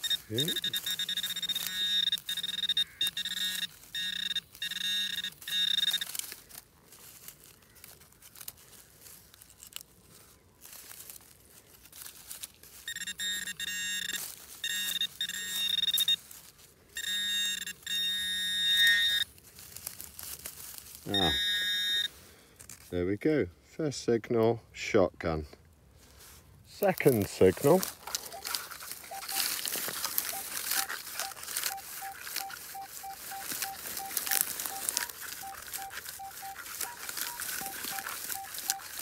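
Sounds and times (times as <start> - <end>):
metal detector pinpointer beeping: 0.0 - 6.4, 12.8 - 16.3, 17.0 - 19.3, 21.1 - 22.1, 28.2 - 39.0.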